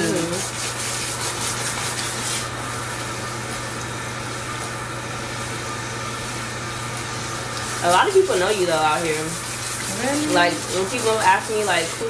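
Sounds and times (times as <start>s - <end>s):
hand scrubbing scalp: 0.0s - 2.5s, 7.6s - 12.0s
water spraying over wet hair: 0.0s - 12.0s.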